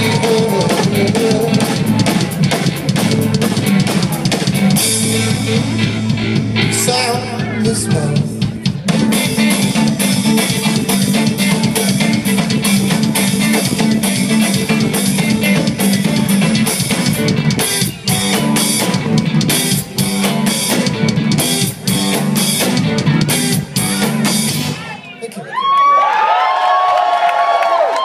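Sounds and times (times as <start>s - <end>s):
rock band playing: 0.0s - 25.3s
drums: 0.0s - 26.4s.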